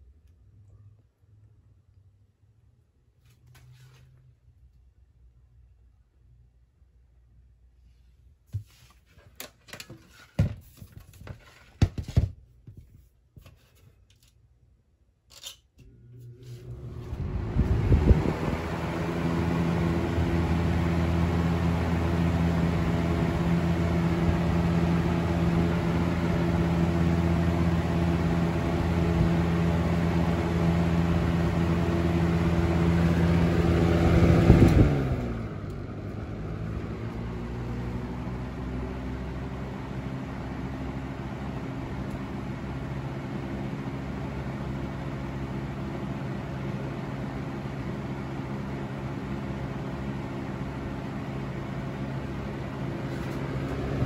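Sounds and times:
fan motor humming: 15.8s - 54.0s
fan clicks: 34.0s - 36.2s.

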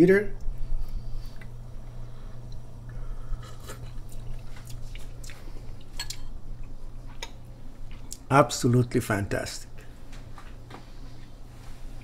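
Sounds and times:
steady low hum: 0.0s - 12.0s
mouth sipping and smacking: 0.4s - 8.3s.

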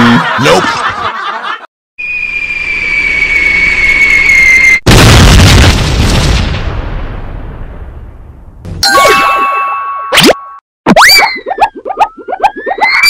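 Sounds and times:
high falling whistle: 2.0s - 4.8s
loud cartoon boom: 4.8s - 8.2s.

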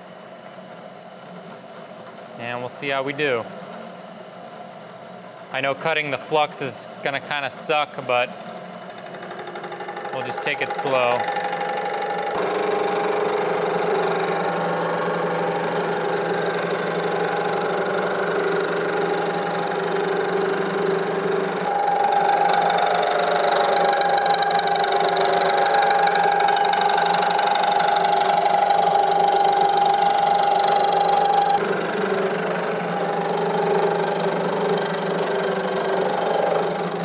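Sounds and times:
milling machine whine: 8.9s - 37.0s.

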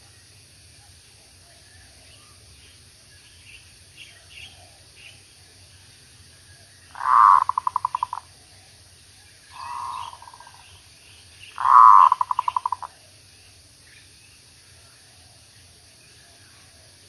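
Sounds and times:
dove cooing: 7.0s - 8.2s, 9.6s - 10.6s, 11.6s - 13.0s.

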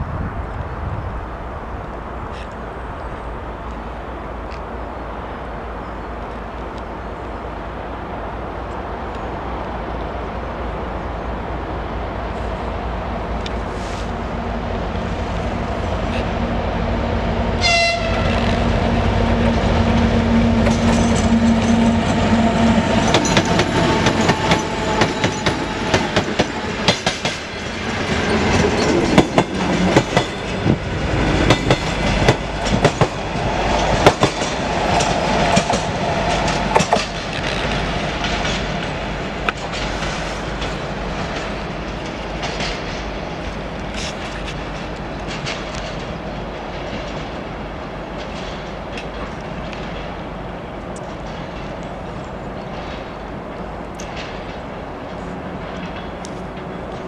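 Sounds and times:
diesel locomotive engines running: 0.8s - 57.0s
locomotive horn: 17.5s - 23.2s
wheels clicking over rail joints: 22.9s - 57.0s.

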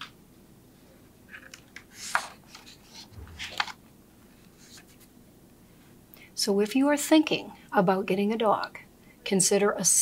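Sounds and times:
page turning rustle: 1.3s - 3.8s
soft low bump: 3.2s - 3.7s.

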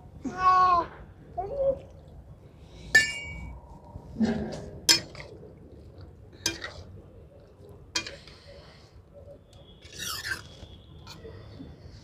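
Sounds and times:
steel utensils clinking on iron pan: 3.0s - 3.5s, 4.9s - 5.2s, 6.4s - 6.7s, 8.0s - 8.2s.

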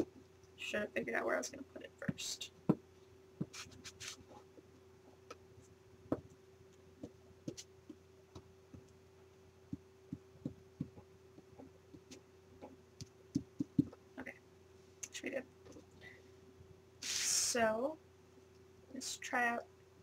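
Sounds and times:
faint steady hum: 0.0s - 20.0s
glue stick tapping on paper: 13.0s - 14.0s.

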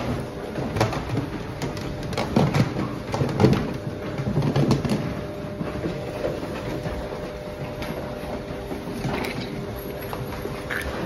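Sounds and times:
clicks and shuffles: 0.0s - 11.0s
steady hum: 0.0s - 11.0s.

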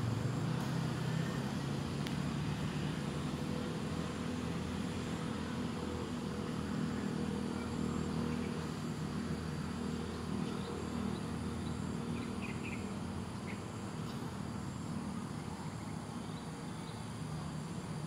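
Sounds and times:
engine humming: 0.0s - 18.0s.

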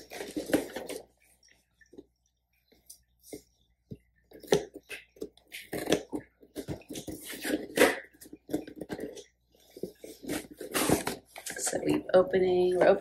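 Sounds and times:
cardboard box being opened: 4.4s - 11.5s.

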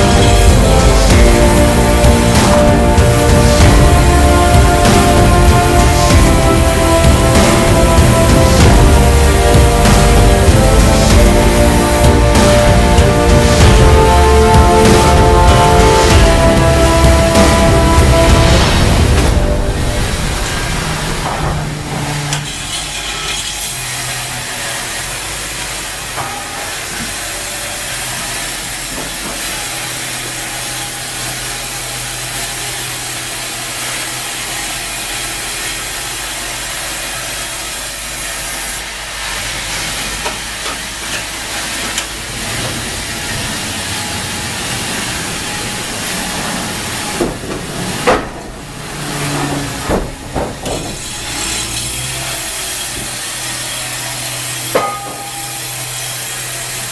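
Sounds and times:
low motor hum: 0.0s - 23.1s, 38.2s - 55.0s
band saw cutting log: 0.0s - 56.9s
knocks and clatters: 20.4s - 23.6s, 44.7s - 53.2s.

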